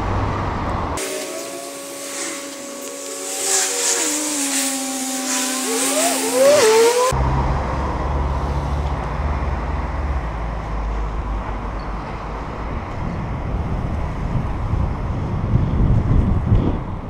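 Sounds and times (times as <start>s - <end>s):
road rumble: 0.0s - 17.0s
car engine hum: 1.0s - 7.2s
wind buffeting microphone: 12.6s - 17.0s.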